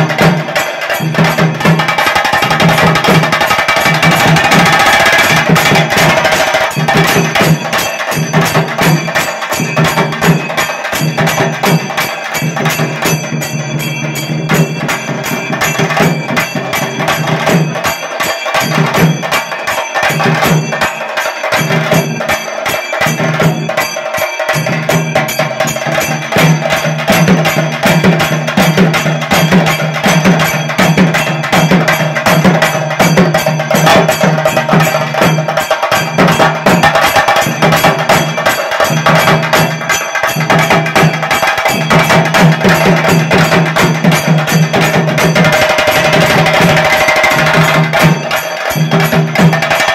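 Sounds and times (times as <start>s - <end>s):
drums beaten with sticks: 0.0s - 49.9s.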